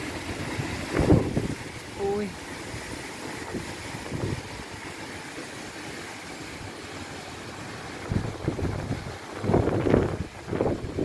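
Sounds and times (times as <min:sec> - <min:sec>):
wind buffeting microphone: 0:00.0 - 0:01.9, 0:02.6 - 0:04.9, 0:07.8 - 0:11.0
storm wind through trees: 0:00.0 - 0:11.0.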